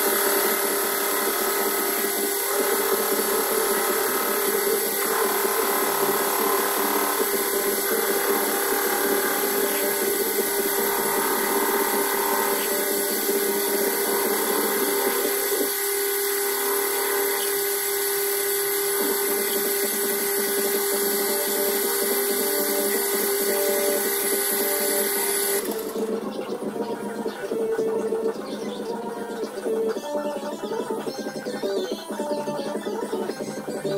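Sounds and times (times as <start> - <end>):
metal lathe motor whining: 0.0 - 29.3.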